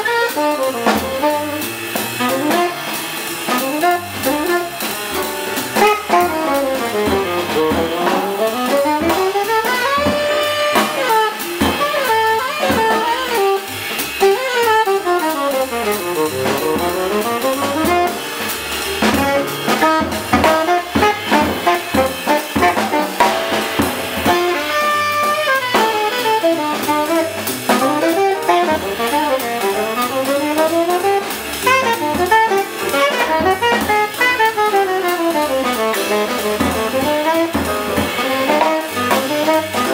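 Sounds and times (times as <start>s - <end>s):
drum kit: 0.0s - 39.9s
jazz rhythm section: 0.0s - 39.9s
saxophone solo: 0.0s - 39.9s.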